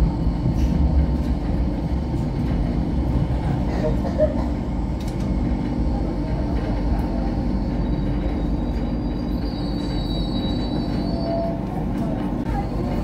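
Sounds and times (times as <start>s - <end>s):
train rumbling on track: 0.0s - 13.0s
high wheel squeal: 7.8s - 11.6s.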